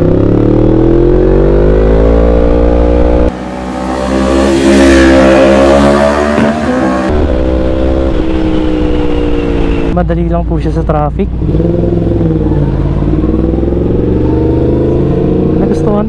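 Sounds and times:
motorcycle passing by: 0:00.0 - 0:09.9, 0:11.5 - 0:16.0
motorcycle engine revving: 0:00.0 - 0:10.0, 0:11.0 - 0:16.0.

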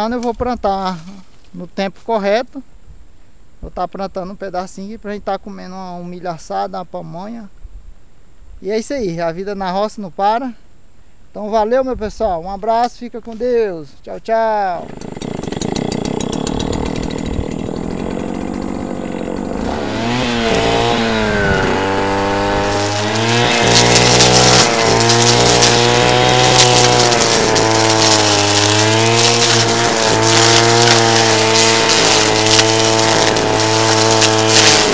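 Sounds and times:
brush cutter engine cutting grass: 0:14.6 - 0:34.9.

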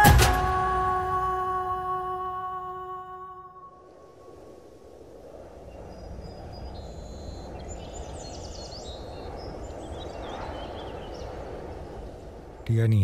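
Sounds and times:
low background rush: 0:00.0 - 0:13.0
small birds chirping: 0:05.6 - 0:12.7.

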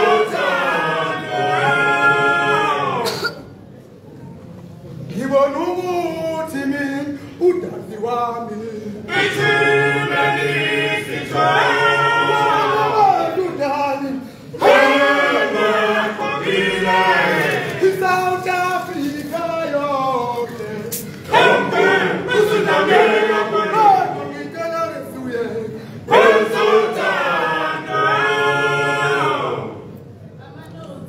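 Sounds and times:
male choir singing: 0:00.0 - 0:03.2, 0:08.4 - 0:29.9.

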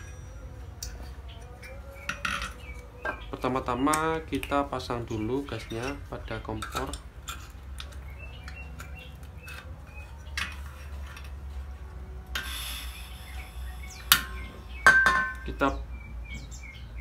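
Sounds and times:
birds chirping: 0:00.0 - 0:17.0
gas hiss: 0:12.3 - 0:14.7
sharp metal snaps: 0:14.0 - 0:14.5.

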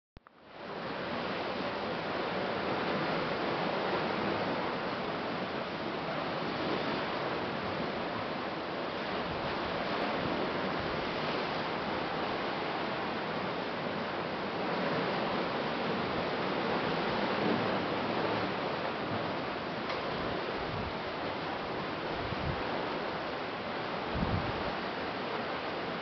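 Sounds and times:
ocean surf washing on rocks: 0:00.6 - 0:26.0.

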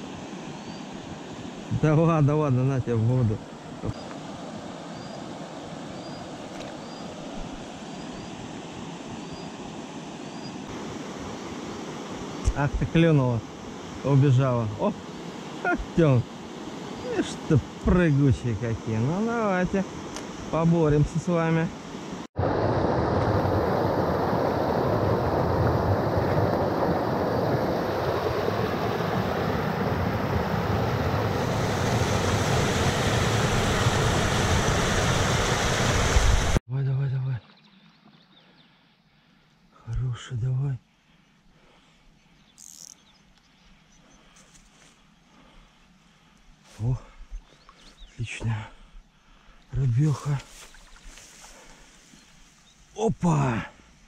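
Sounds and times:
river water flowing: 0:00.0 - 0:36.6
water rushing over rocks: 0:22.4 - 0:36.6.

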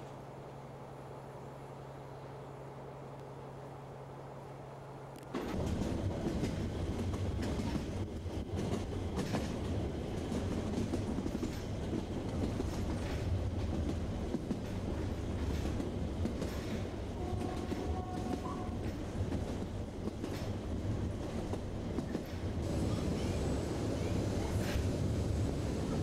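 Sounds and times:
train carriage rumble: 0:00.0 - 0:26.0
wheels clacking over rail joints: 0:05.3 - 0:23.4.

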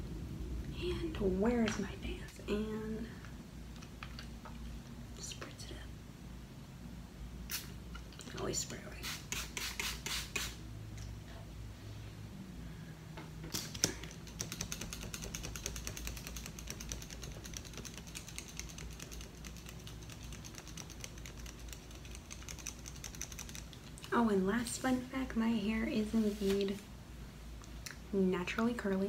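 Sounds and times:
hand fan fluttering: 0:13.6 - 0:24.2.

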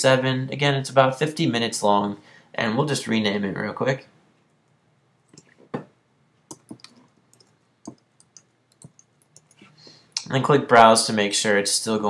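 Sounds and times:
computer keyboard typing: 0:06.5 - 0:09.6.

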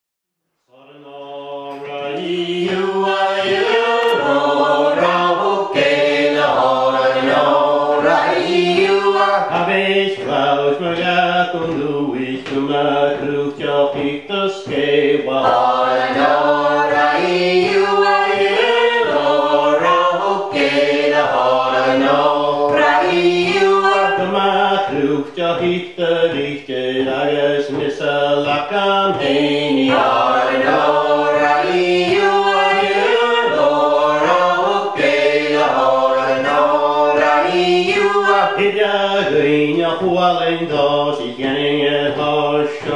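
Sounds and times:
man singing unaccompanied: 0:08.9 - 0:17.0, 0:18.6 - 0:42.9.

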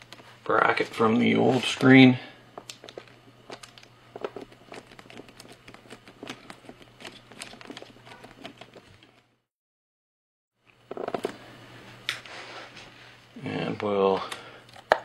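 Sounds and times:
steady low hum: 0:00.0 - 0:09.4.

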